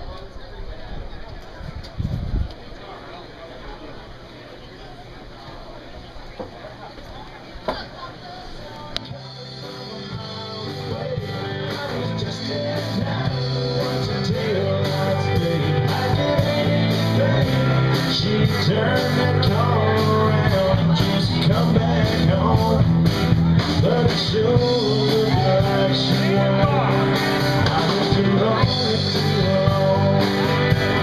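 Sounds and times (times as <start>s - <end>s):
person singing: 8.6s - 31.0s
live band playing: 9.1s - 31.0s.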